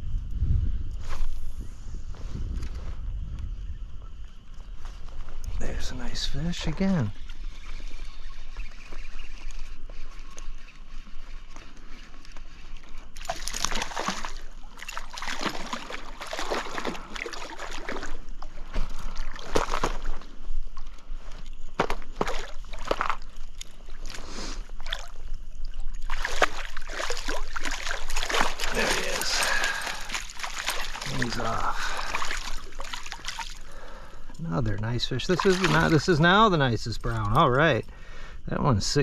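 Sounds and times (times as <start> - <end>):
fish splashing at water surface: 12.8 - 20.2, 21.8 - 34.0, 35.3 - 36.4.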